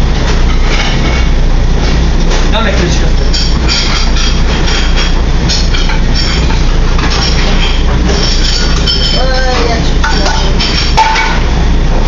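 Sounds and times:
gas burners roaring: 0.0 - 12.0
pans and utensils clattering: 2.8 - 11.6.

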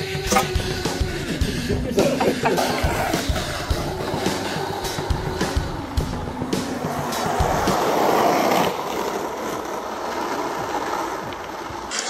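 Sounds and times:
skateboard wheels rolling on asphalt: 2.6 - 12.0.

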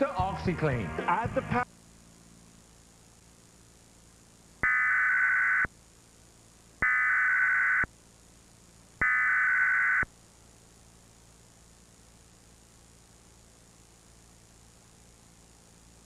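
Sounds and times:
buzzy digital data tones: 0.0 - 10.1.

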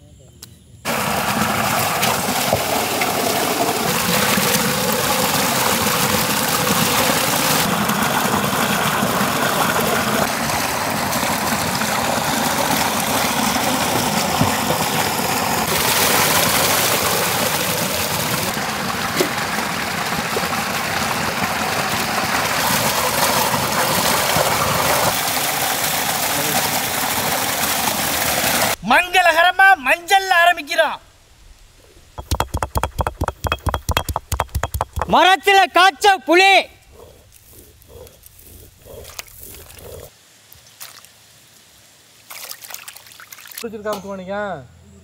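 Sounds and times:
water pouring over stone: 0.9 - 28.8, 32.2 - 35.2.

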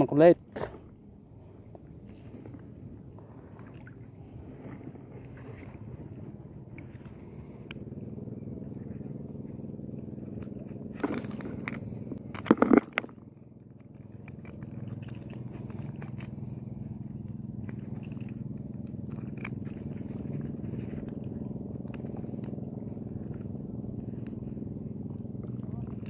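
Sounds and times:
boat engine droning: 0.0 - 26.0.

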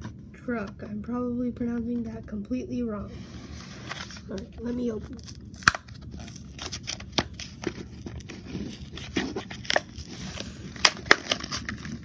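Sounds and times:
package crinkling and tearing: 5.1 - 12.0.

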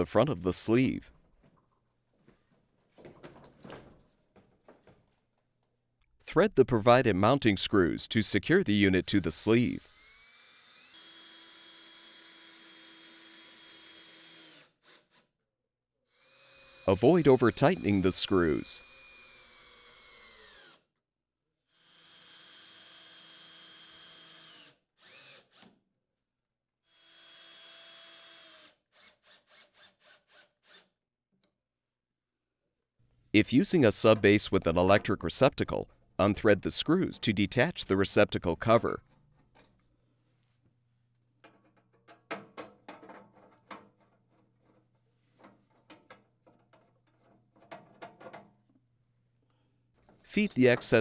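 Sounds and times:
cordless drill driving screws: 9.0 - 15.3, 16.1 - 20.8, 21.8 - 25.7, 26.9 - 30.9
screwdriver turning screws: 16.3 - 20.8, 26.9 - 30.9.

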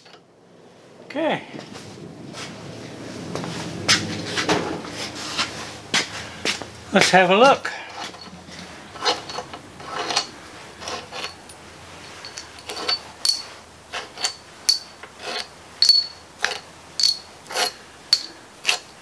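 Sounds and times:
wrench clinking on steel bolts: 0.0 - 0.2, 7.6 - 19.0.

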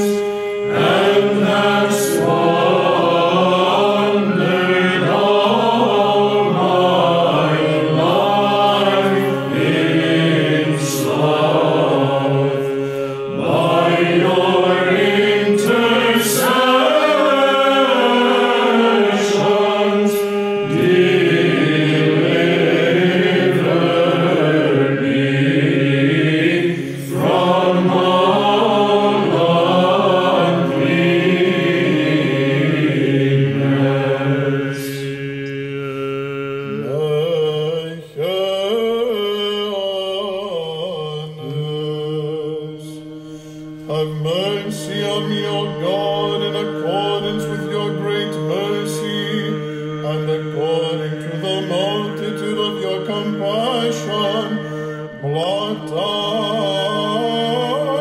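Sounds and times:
choir chanting in unison: 0.0 - 41.6
held vocal drone: 0.0 - 58.0.

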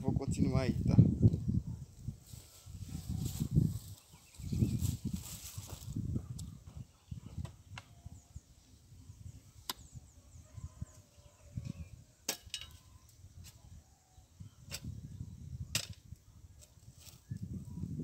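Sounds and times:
metal tools striking stony earth: 12.2 - 13.6, 15.7 - 16.7.

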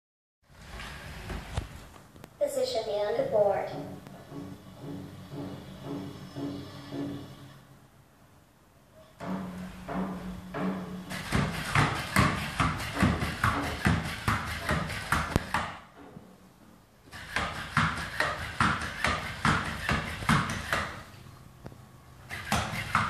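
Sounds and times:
robot feet tapping: 11.1 - 15.7.

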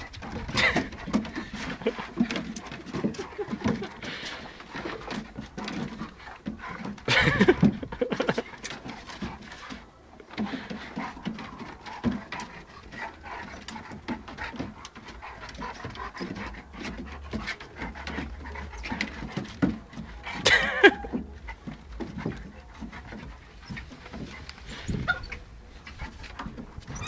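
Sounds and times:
dog panting: 0.0 - 27.0
dog vocal noises: 0.0 - 27.0
dogs scuffling: 0.0 - 27.0.

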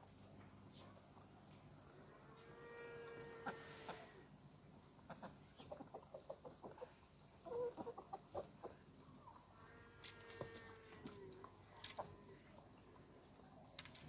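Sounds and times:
soft chicken cluck: 0.1 - 9.7
chickens pecking at feed: 2.7 - 14.0.

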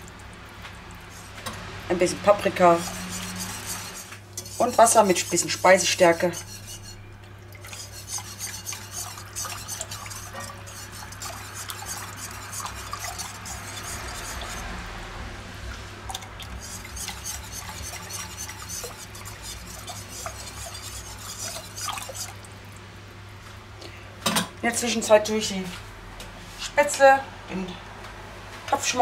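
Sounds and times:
whisk scraping against pot: 1.1 - 14.8, 16.5 - 22.4.

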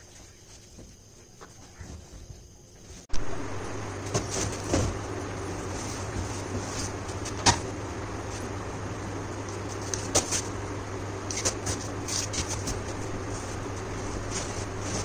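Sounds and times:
steady low hum: 0.0 - 15.0
cardboard scrapes and rustles: 11.4 - 15.0.

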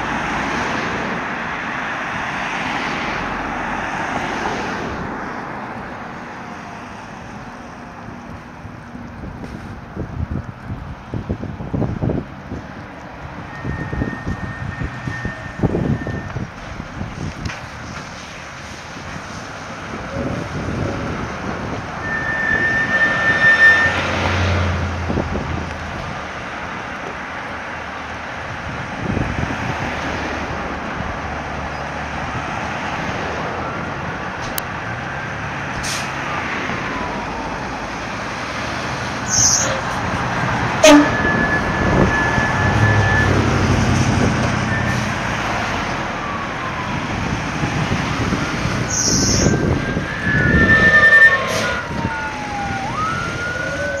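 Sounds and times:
diesel engine pulling away: 0.0 - 54.0
fire engine siren sweeping: 13.2 - 25.7, 32.3 - 54.0
air brake hisses: 35.8 - 36.2.

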